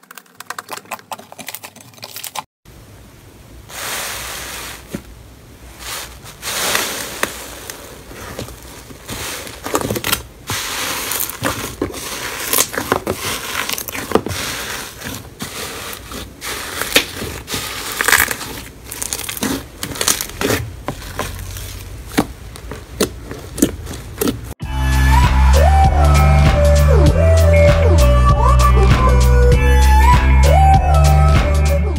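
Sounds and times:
slime bubbles crackling and popping: 0:06.5 - 0:24.6.

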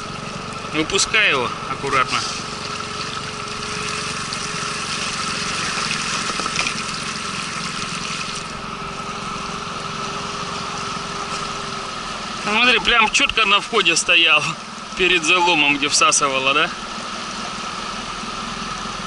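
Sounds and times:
outboard motor running: 0:00.0 - 0:19.0
water splashing at hull: 0:02.0 - 0:08.7.

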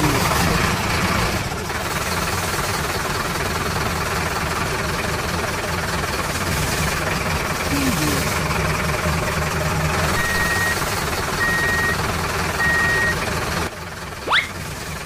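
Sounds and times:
truck engine running: 0:00.0 - 0:15.0
reversing beeps: 0:10.2 - 0:10.8, 0:11.4 - 0:12.0, 0:12.6 - 0:13.2
rising whistle boing effect: 0:14.3 - 0:14.5.

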